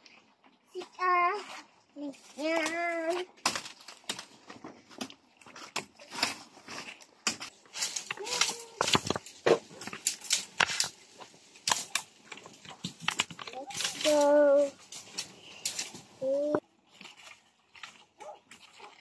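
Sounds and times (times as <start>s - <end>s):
dry leaves and twigs crackling: 2.0s - 19.0s
branches breaking: 2.4s - 16.6s.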